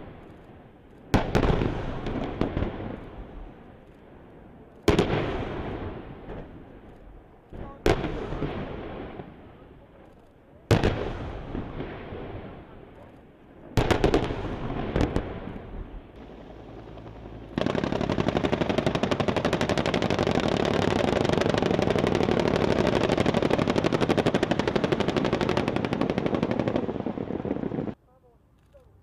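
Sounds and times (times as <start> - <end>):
helicopter rotor pounding: 16.2 - 27.9.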